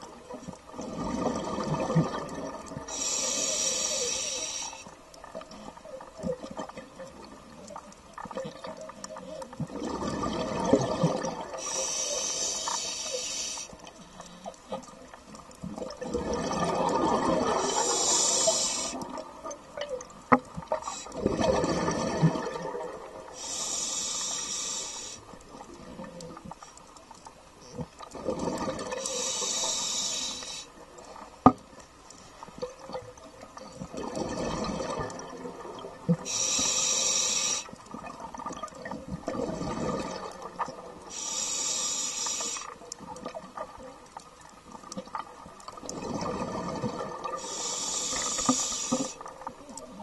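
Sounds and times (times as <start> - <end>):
diver breathing through regulator: 2.9 - 5.0, 11.5 - 14.5, 17.5 - 19.2, 23.4 - 25.3, 29.0 - 30.8, 36.2 - 37.7, 41.1 - 42.8, 47.4 - 49.3
bubbling rush: 9.7 - 11.7, 15.8 - 19.2, 21.2 - 23.2.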